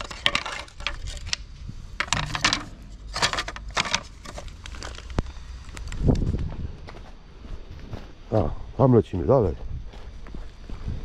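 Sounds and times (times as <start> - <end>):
picture frames clattering: 0.0 - 1.4, 2.0 - 5.1.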